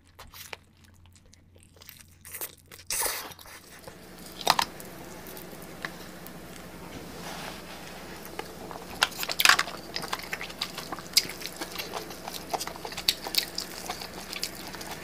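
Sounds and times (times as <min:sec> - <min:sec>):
wet chewing and crunching: 0:00.0 - 0:15.0
crab shells cracking: 0:00.2 - 0:06.9, 0:08.1 - 0:15.0.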